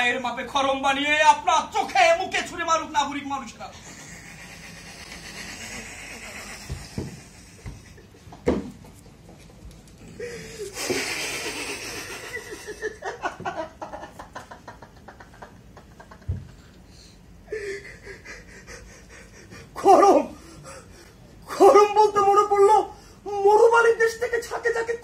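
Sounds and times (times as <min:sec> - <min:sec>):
man wheezing strained vocalising: 0:03.7 - 0:08.0, 0:10.0 - 0:13.0.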